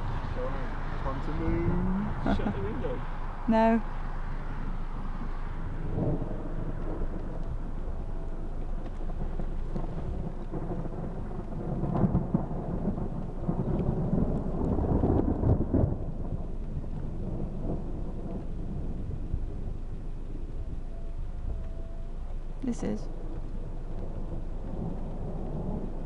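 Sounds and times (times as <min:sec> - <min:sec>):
steady rain: 0:00.0 - 0:26.0
thunder rumbling: 0:00.0 - 0:26.0.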